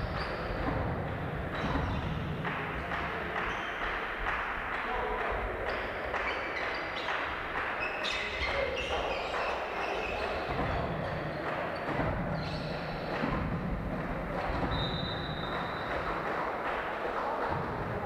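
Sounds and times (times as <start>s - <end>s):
sneaker squeaks: 0.0s - 2.3s, 3.4s - 4.0s, 5.7s - 13.6s, 14.5s - 16.2s
chatter of people: 0.0s - 18.0s.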